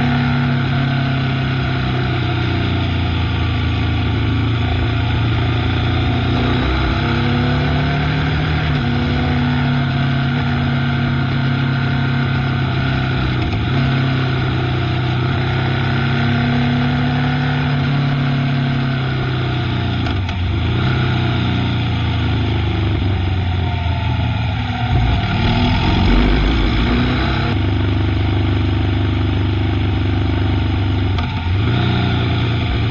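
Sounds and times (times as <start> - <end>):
motorcycle engine running: 0.0 - 6.4, 19.6 - 32.9
wind and road noise: 19.4 - 28.8.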